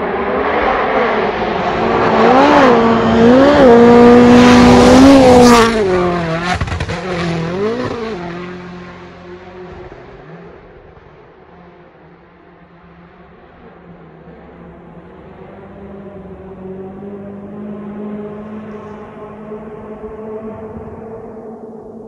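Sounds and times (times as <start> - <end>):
rally car engine passing: 0.0 - 22.0.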